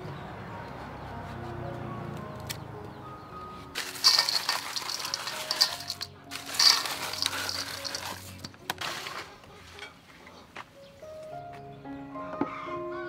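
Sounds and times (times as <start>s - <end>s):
soft background music: 0.0s - 13.0s
crushed ice poured into metal bowl: 3.8s - 9.2s.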